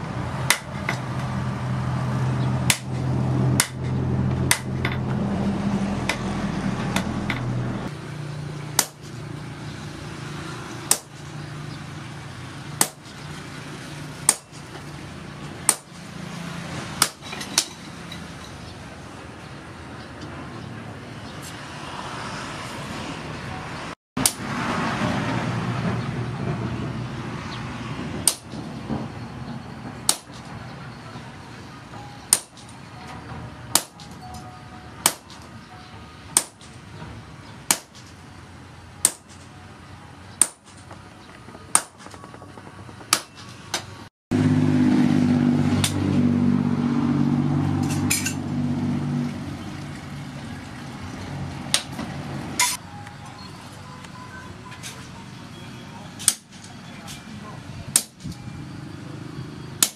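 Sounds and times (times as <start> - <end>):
sledgehammer clanging on metal: 17.0 - 18.7.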